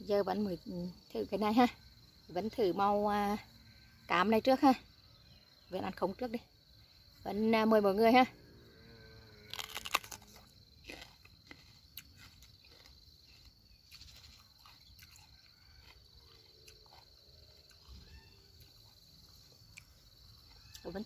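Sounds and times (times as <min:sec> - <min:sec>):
high insect trill: 0:00.0 - 0:21.0
crunching and chewing pepper: 0:09.4 - 0:21.0.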